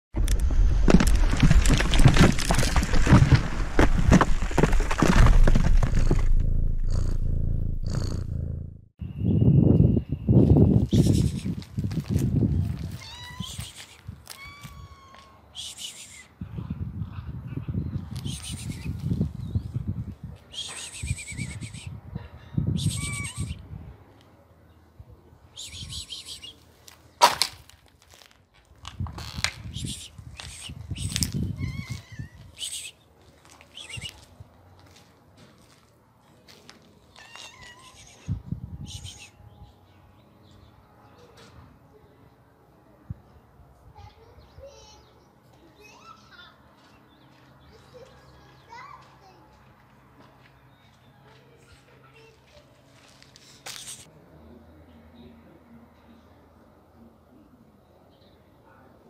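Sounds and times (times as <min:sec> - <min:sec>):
stone cracking and breaking: 0:00.2 - 0:06.4
low rumble: 0:00.2 - 0:08.9
small birds chirping: 0:17.8 - 0:22.0, 0:25.5 - 0:26.6, 0:29.6 - 0:34.3, 0:37.1 - 0:41.4.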